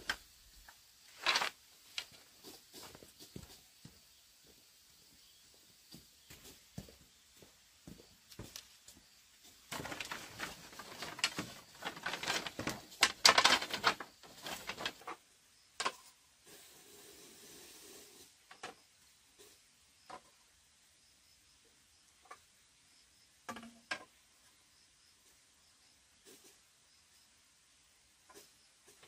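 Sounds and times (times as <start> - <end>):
objects rustling and clattering: 0.0 - 3.6, 9.4 - 15.2.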